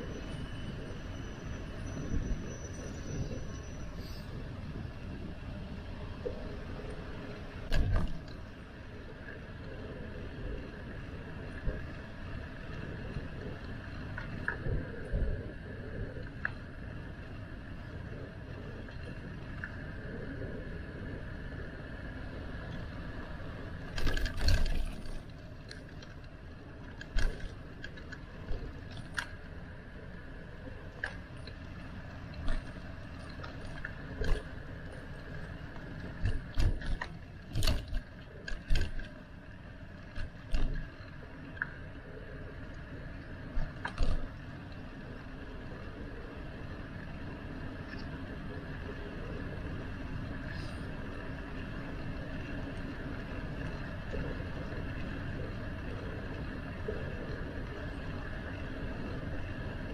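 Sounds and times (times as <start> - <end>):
bicycle rolling noise: 0.0 - 59.9
wind: 0.0 - 59.9
bike knocking and rattling: 7.6 - 8.5, 22.6 - 29.6, 30.9 - 42.0, 43.5 - 44.7.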